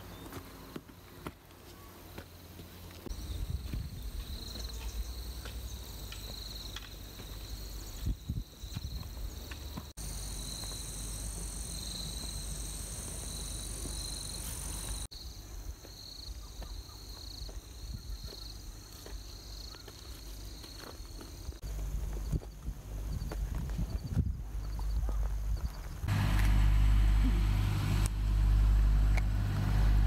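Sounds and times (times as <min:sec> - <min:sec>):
insects chirping: 0:02.0 - 0:29.4
wind rumble on microphone: 0:03.1 - 0:04.5, 0:07.9 - 0:09.3, 0:22.0 - 0:26.1.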